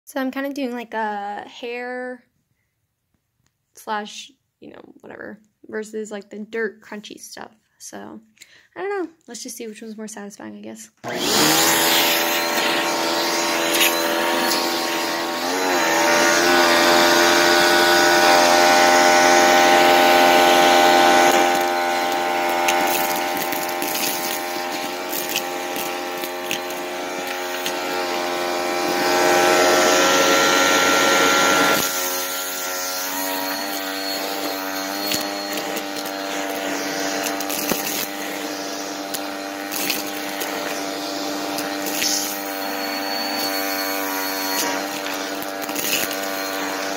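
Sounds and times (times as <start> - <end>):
debris rattling up vacuum hose: 11.0 - 46.9
vacuum cleaner motor whine: 11.0 - 46.9.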